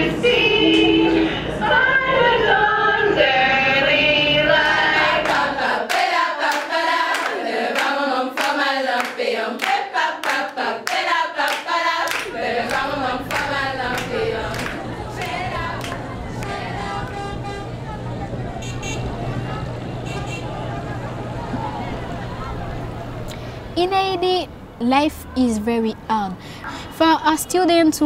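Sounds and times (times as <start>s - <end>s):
girls singing together: 0.0s - 17.6s
rhythmic hand clapping: 4.6s - 17.4s.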